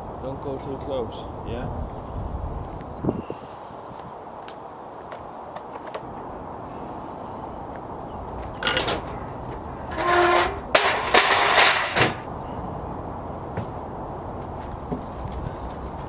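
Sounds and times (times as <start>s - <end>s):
metal ramp scraping: 8.5s - 12.3s
metal screech: 8.6s - 12.2s.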